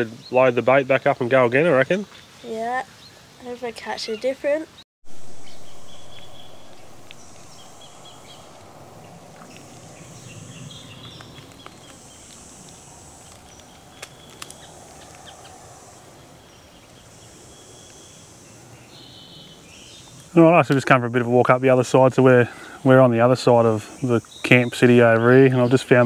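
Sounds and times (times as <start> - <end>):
insects buzzing: 5.0 - 26.0
faint clicks: 11.0 - 15.6.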